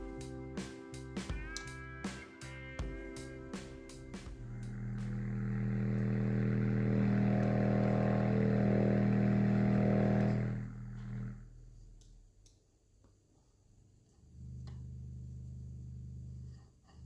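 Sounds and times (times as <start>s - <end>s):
low buzzing test tone: 4.4s - 12.2s, 14.4s - 16.5s.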